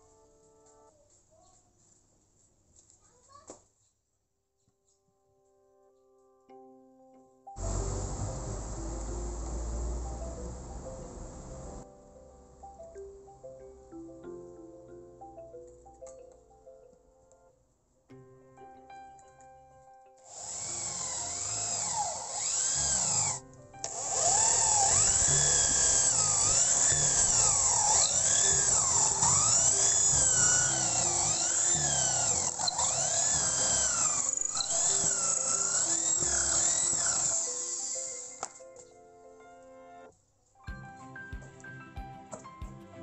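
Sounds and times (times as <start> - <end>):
electric drill boring into wood: 7.6 - 11.8, 20.3 - 38.6.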